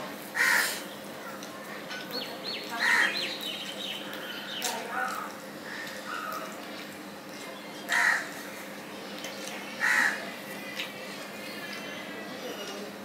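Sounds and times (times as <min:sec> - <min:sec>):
crow cawing: 0:00.4 - 0:00.8, 0:02.8 - 0:03.2, 0:05.6 - 0:06.5, 0:07.9 - 0:08.4, 0:09.8 - 0:10.2.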